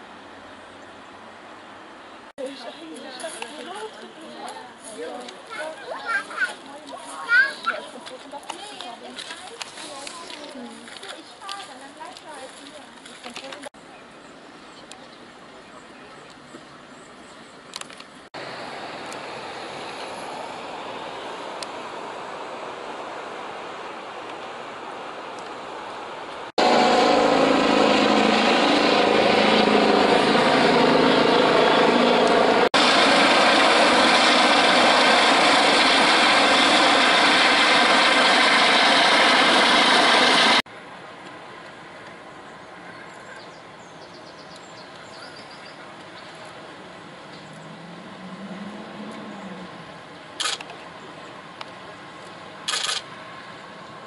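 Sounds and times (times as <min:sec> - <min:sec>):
steady engine hum: 0:09.4 - 0:54.0
faint low engine hum: 0:40.7 - 0:54.0
outdoor background hiss: 0:40.7 - 0:54.0
short sharp noise bursts: 0:52.7 - 0:53.1.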